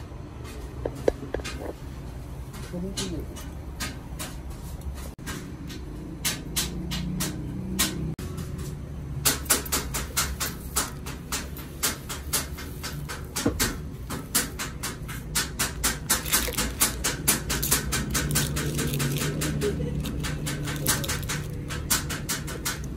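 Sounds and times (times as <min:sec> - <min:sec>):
rapid irregular clicking: 0:09.2 - 0:22.9.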